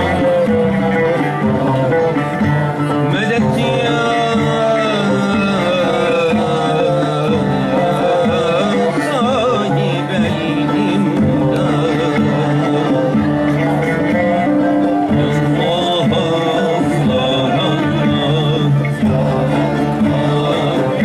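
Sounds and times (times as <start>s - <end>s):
person singing a hymn: 0.0s - 21.0s
sustained instrumental backing: 0.0s - 21.0s.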